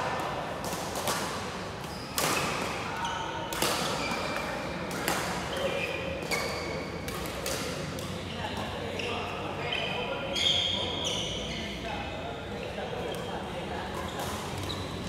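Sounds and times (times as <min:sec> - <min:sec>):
badminton rackets hitting shuttlecocks: 0:00.0 - 0:08.2
background chatter: 0:02.6 - 0:15.0.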